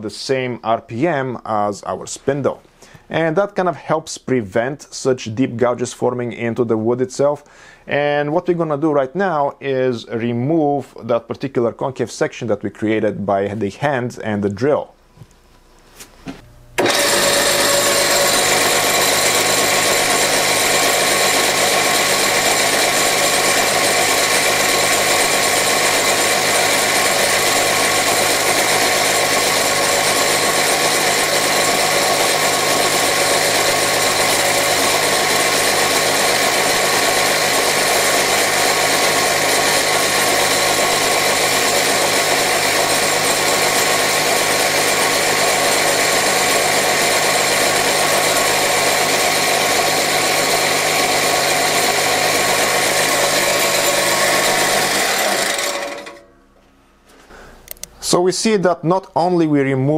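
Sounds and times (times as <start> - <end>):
lathe motor hum: 16.8 - 56.3.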